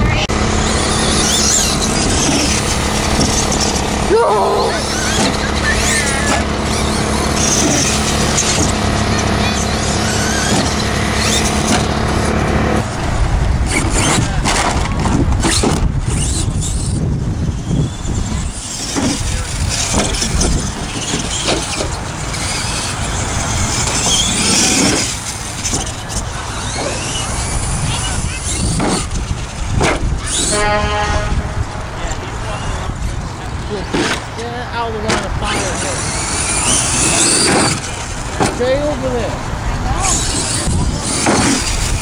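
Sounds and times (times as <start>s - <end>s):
rc truck motors whining: 0.0s - 42.0s
knocks of truck landings: 4.8s - 16.8s, 18.3s - 31.4s, 35.0s - 38.8s, 40.0s - 42.0s.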